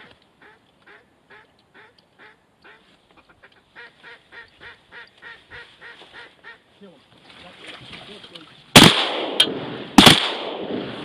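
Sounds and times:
duck quacking: 0.4s - 6.6s.

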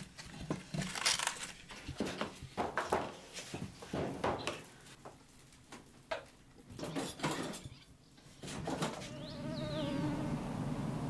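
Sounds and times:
fly buzzing: 8.9s - 11.0s.

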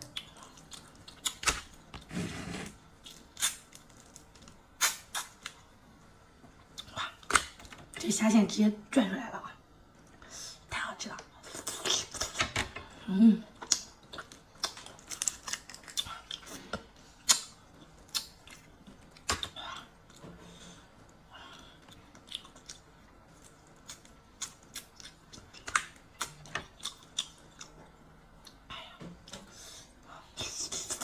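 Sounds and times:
prawn shell being peeled: 13.6s - 16.5s
wet chewing: 21.8s - 27.8s.

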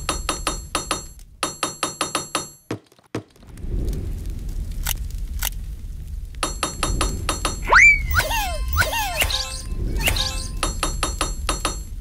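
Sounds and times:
toy hammers tapping plastic blocks: 10.6s - 11.9s.

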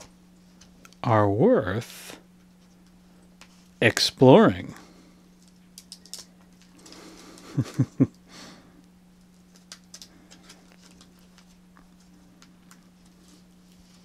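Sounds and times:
steady low hum: 0.0s - 14.0s
faint paper clicks: 9.2s - 13.8s
paper and card rustling: 9.4s - 14.0s.

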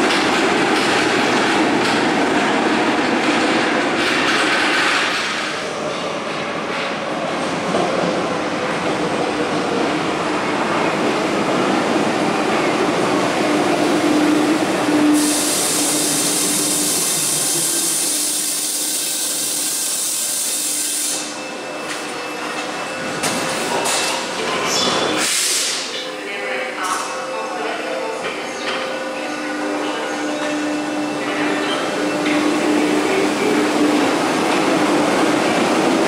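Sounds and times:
train rolling rumble: 0.0s - 20.3s
loud high air hiss: 15.1s - 21.4s, 25.2s - 25.9s.

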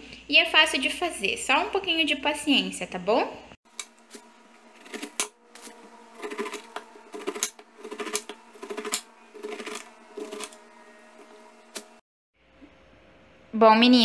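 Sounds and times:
knife cutting pineapple rind: 3.7s - 12.0s.

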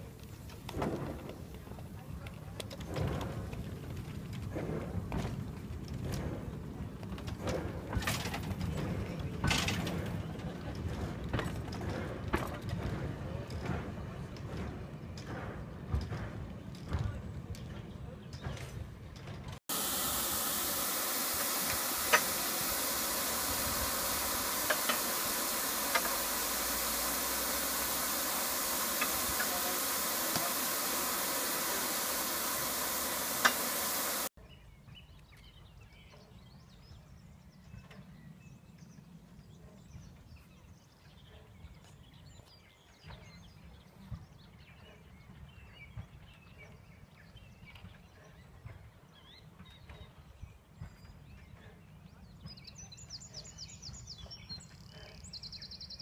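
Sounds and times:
steam hissing from boiler: 19.6s - 34.3s.

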